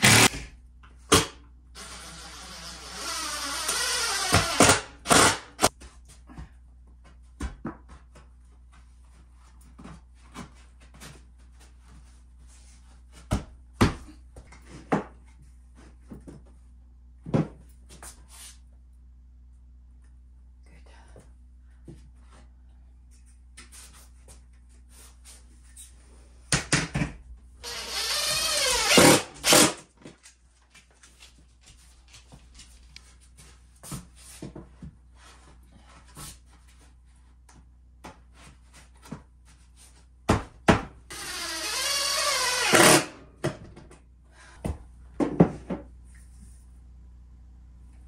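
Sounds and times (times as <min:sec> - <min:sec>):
handheld power tool running: 0:00.0 - 0:00.4, 0:01.8 - 0:05.7, 0:27.6 - 0:29.8, 0:41.1 - 0:43.2.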